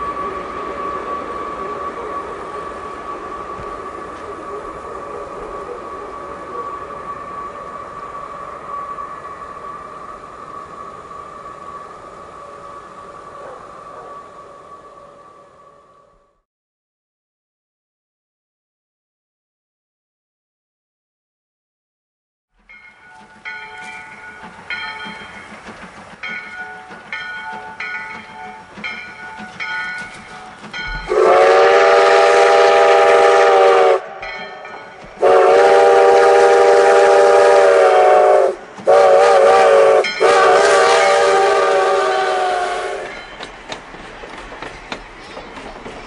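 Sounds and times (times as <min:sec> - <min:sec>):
steam whistle blasts: 0:00.0 - 0:16.3, 0:30.9 - 0:34.3, 0:35.2 - 0:43.2
passing train: 0:00.0 - 0:16.4, 0:22.6 - 0:46.0
locomotive bell ringing: 0:22.6 - 0:31.4, 0:34.0 - 0:35.4, 0:40.0 - 0:41.2, 0:43.0 - 0:43.7.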